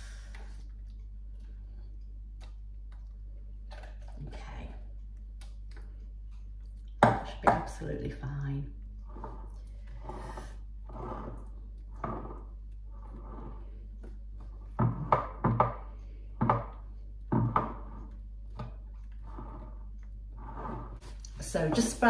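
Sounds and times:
spatula scraping custard: 0:09.0 - 0:14.9.

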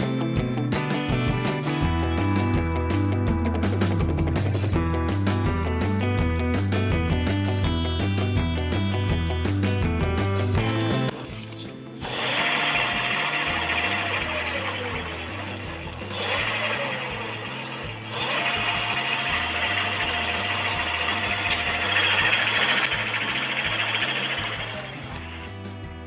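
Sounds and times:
electric motor whirring: 0:10.6 - 0:25.6.

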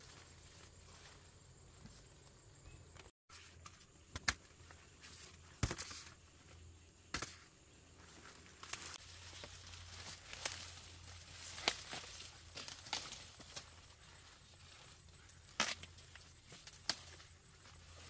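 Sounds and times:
sharp snaps and cracks: 0:08.6 - 0:13.8, 0:15.2 - 0:17.3.

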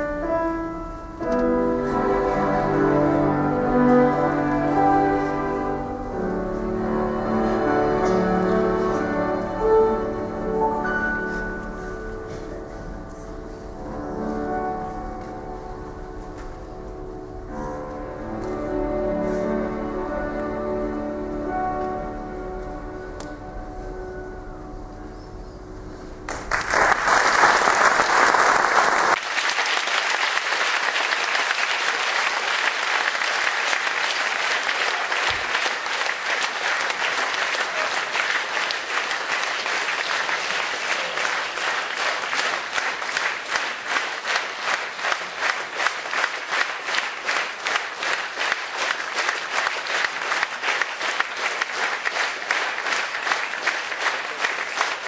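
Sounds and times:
audience applauding: 0:26.3 - 0:55.0
rhythmic clapping in unison: 0:26.3 - 0:55.0.

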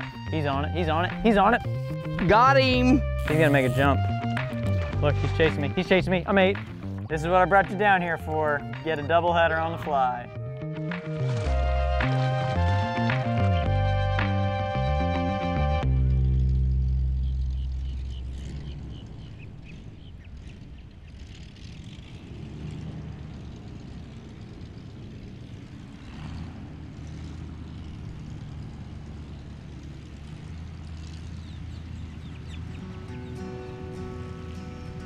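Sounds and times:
music: 0:00.0 - 0:17.9, 0:32.4 - 0:35.0
low vehicle engine rumble: 0:00.0 - 0:35.0.

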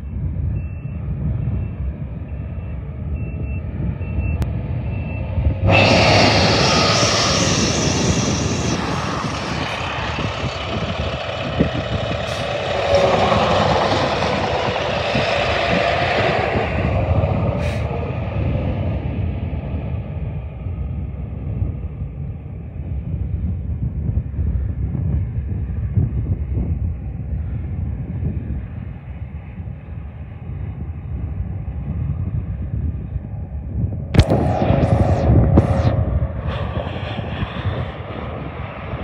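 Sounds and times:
diesel engine running: 0:01.2 - 0:22.3, 0:34.2 - 0:39.0
truck passing with road noise: 0:03.7 - 0:20.6.

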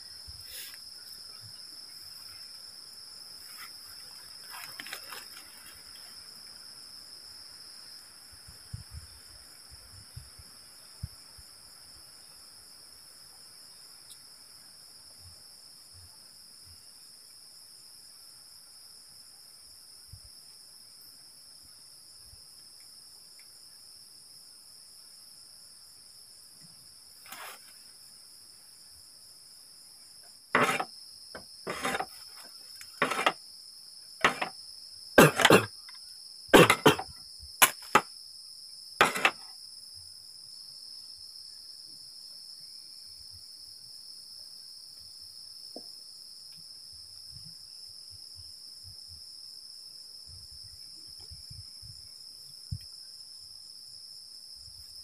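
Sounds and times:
crickets and insects chirring: 0:00.0 - 0:55.0
loud short sharp noises: 0:34.2 - 0:34.5, 0:35.2 - 0:35.7, 0:36.6 - 0:38.0, 0:39.0 - 0:39.4.

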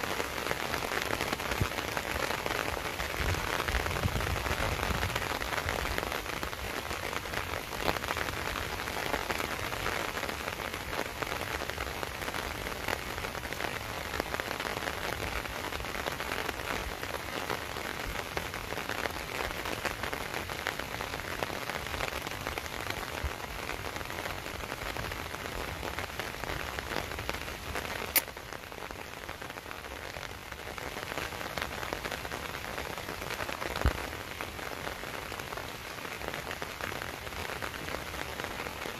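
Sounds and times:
rain falling: 0:00.0 - 0:38.9
sharp click: 0:28.1 - 0:28.3.

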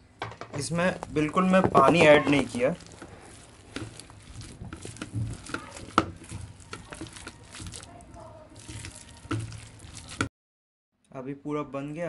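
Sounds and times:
hand squelching wet batter: 0:00.6 - 0:10.3.

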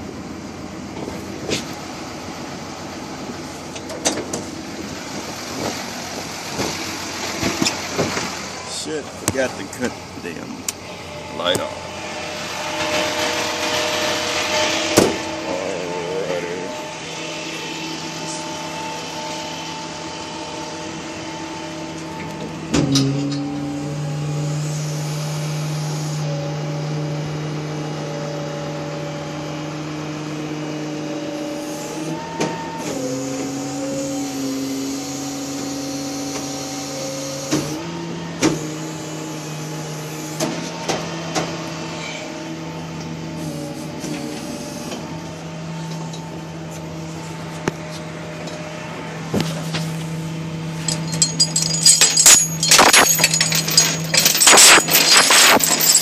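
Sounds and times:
mechanical hum: 0:00.0 - 0:56.0
chains rattling and clanking: 0:50.7 - 0:56.0.

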